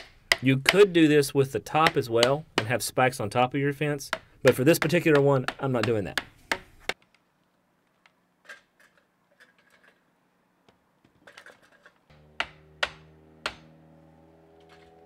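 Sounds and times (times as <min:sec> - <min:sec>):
hammer striking wood: 0:00.0 - 0:00.8, 0:01.8 - 0:02.8, 0:04.1 - 0:07.0, 0:12.1 - 0:13.8.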